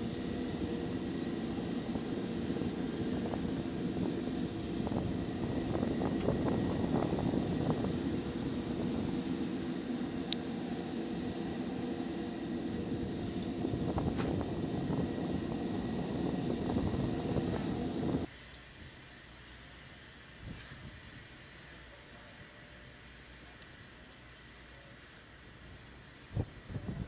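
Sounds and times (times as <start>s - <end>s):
jet engine running: 0.0s - 18.3s.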